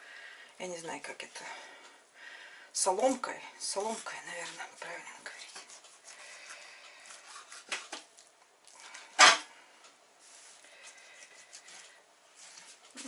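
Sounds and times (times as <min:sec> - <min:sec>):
knife scraping pork skin: 0:07.0 - 0:07.9.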